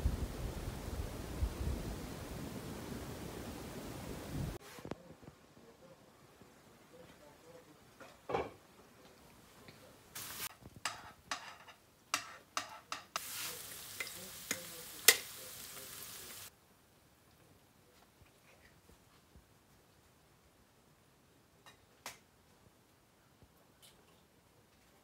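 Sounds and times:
vegetables sizzling in a pan: 0:10.2 - 0:11.1, 0:13.0 - 0:16.5
spoon scraping and tapping pan: 0:10.8 - 0:15.5.

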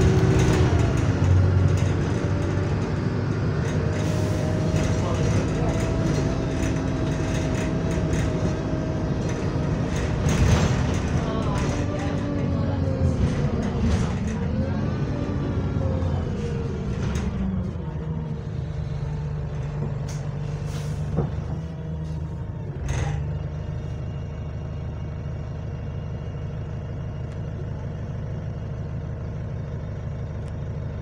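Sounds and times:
bus engine drone: 0:00.0 - 0:31.0
air brake hisses: 0:20.6 - 0:21.2.

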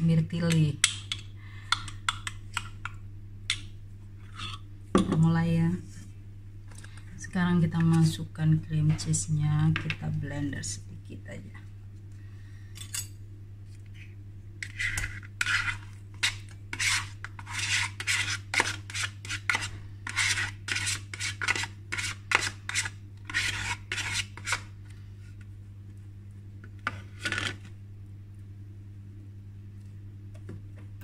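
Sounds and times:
metal spoon scraping bowl: 0:04.2 - 0:04.6, 0:14.6 - 0:24.7.

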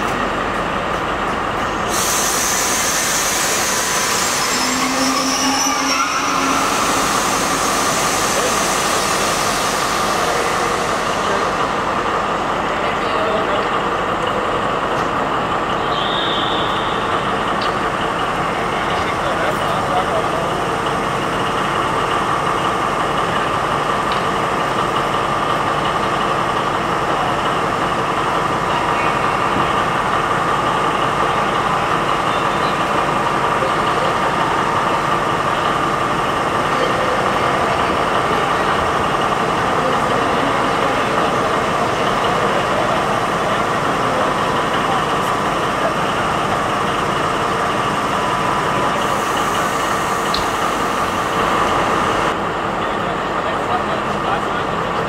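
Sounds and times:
diesel locomotive idling: 0:00.0 - 0:55.0
voices in background: 0:04.5 - 0:22.3.

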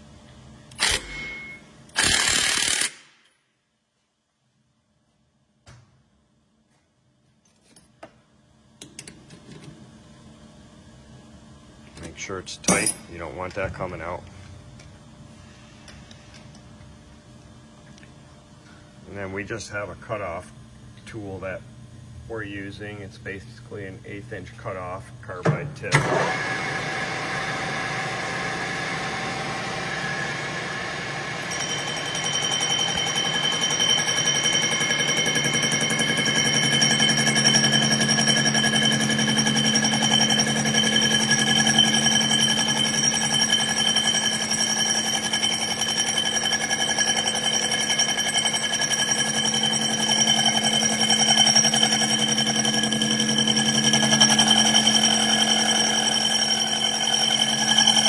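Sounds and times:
high whine of cutting tool: 0:26.0 - 0:58.0
metal lathe running: 0:26.0 - 0:58.0.

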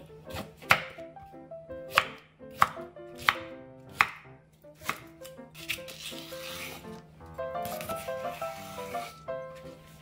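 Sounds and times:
knife chopping on wooden board: 0:00.3 - 0:01.0, 0:01.9 - 0:04.2, 0:04.8 - 0:06.8.

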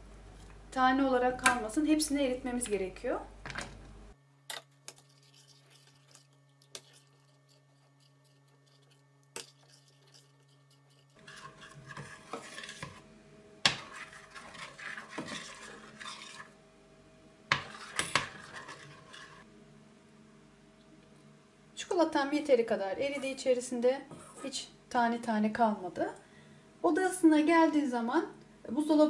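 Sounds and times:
spoon scraping saucepan: 0:04.5 - 0:13.0, 0:13.7 - 0:16.6, 0:17.5 - 0:19.5, 0:23.0 - 0:23.5.

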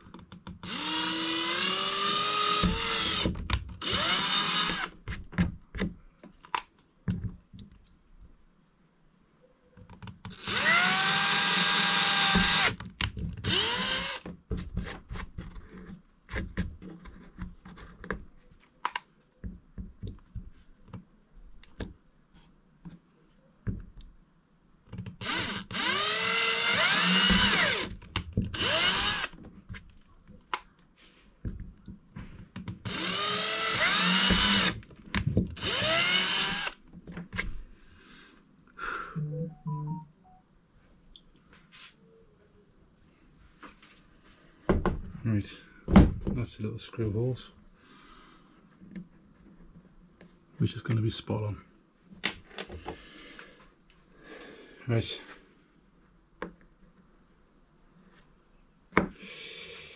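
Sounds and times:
power drill whining: 0:00.6 - 0:05.0, 0:10.3 - 0:12.8, 0:13.4 - 0:14.3, 0:25.2 - 0:29.4, 0:32.8 - 0:34.8, 0:35.6 - 0:36.8.

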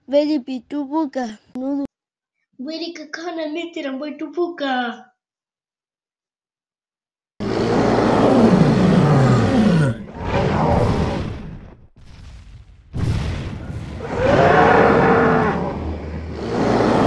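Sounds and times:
monster growling roar: 0:07.4 - 0:11.8, 0:14.0 - 0:17.0.

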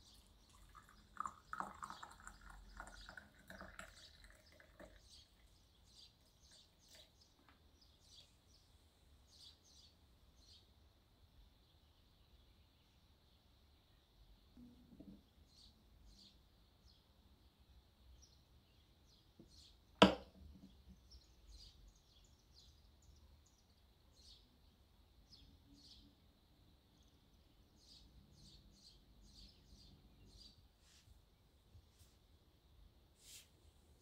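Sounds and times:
cup clinking on saucer: 0:20.0 - 0:20.4.

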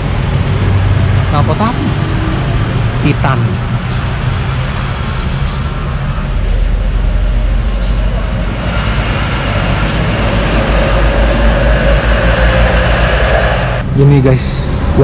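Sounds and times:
low rumble of traffic: 0:00.0 - 0:15.0
steady hum: 0:04.4 - 0:14.0.

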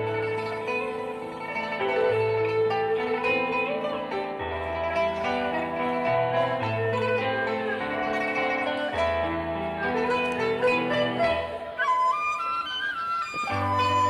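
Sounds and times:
electric keyboard accompaniment: 0:00.0 - 0:14.0
pipa plucking a melody: 0:00.0 - 0:14.0.

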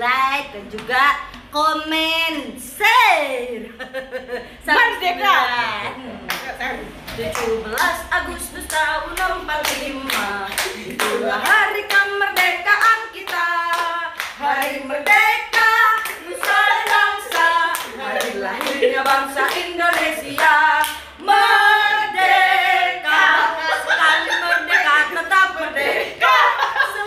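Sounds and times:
women singing together: 0:04.8 - 0:27.0
hands clapping to a beat: 0:07.1 - 0:08.0, 0:08.6 - 0:21.1.

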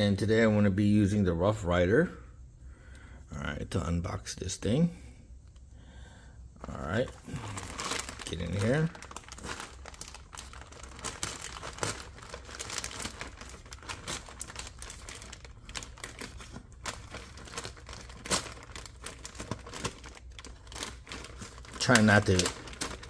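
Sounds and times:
shipping bag crinkling and tearing: 0:06.6 - 0:23.0.

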